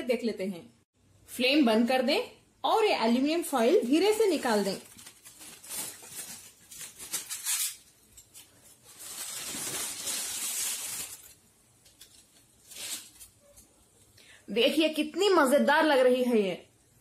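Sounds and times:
aluminium foil crinkling: 3.6s - 13.7s.

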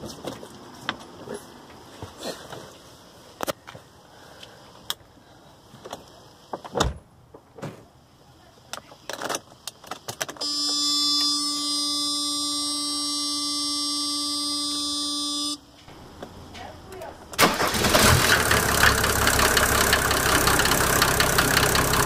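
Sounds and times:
electronic warning buzzer: 10.4s - 15.6s.

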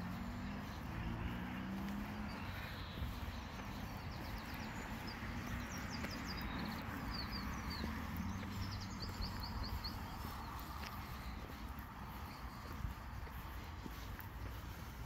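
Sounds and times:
footsteps on garden path: 0.0s - 15.0s
outdoor background noise: 0.0s - 15.0s
bird chirping: 2.1s - 12.9s.

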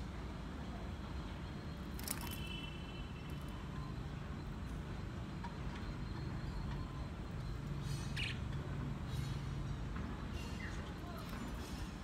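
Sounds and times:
budgerigars chirping: 7.8s - 8.5s.

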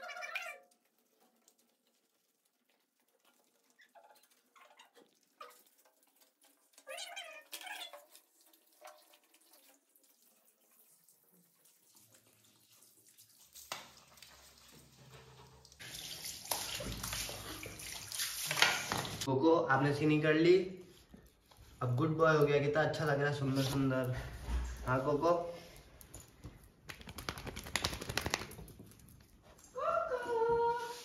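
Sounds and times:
shower spraying water: 9.1s - 19.3s.

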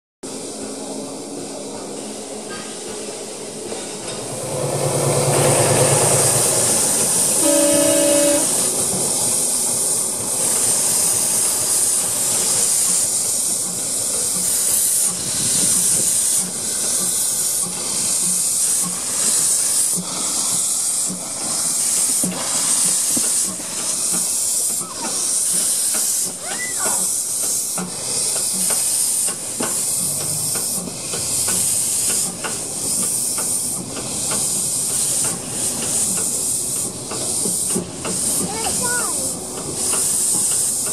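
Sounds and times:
steam locomotive hissing steam: 0.2s - 40.9s
steam whistle: 7.2s - 8.8s.

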